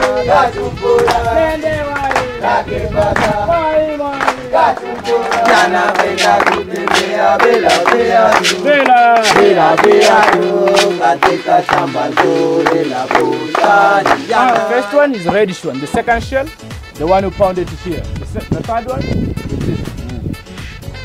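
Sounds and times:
group of people singing: 0.0s - 15.4s
rhythmic hand-clapping: 0.0s - 16.7s.

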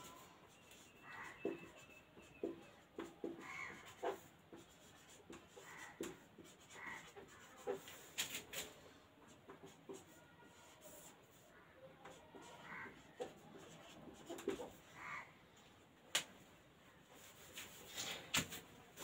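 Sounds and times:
marker writing on whiteboard: 0.0s - 15.3s, 17.1s - 19.0s
marker tapping on whiteboard: 0.8s - 7.9s, 12.0s - 14.8s.

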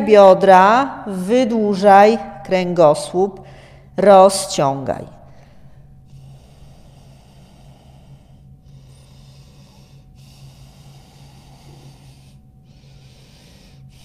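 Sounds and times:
steady low hum: 0.0s - 14.0s
woman breathing slowly: 3.4s - 4.0s, 5.2s - 14.0s.

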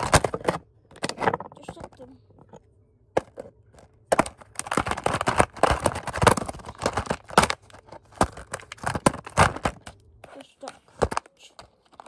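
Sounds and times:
plastic bucket crackling: 0.0s - 2.0s, 3.2s - 9.9s.

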